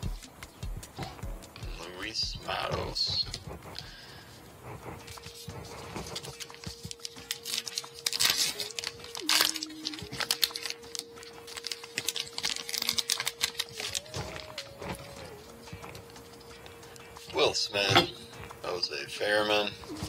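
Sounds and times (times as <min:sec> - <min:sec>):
cards rustling: 0:01.9 - 0:20.0
wrapper crinkling and tearing: 0:05.3 - 0:16.2.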